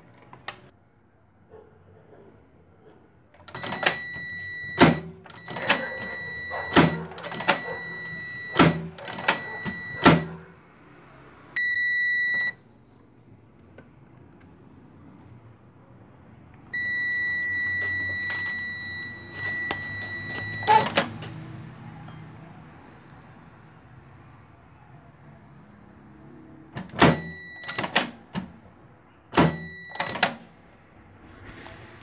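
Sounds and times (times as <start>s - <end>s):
multimeter beeping: 3.5s - 10.4s, 11.6s - 12.6s, 16.8s - 21.2s, 26.8s - 28.4s, 29.4s - 30.4s.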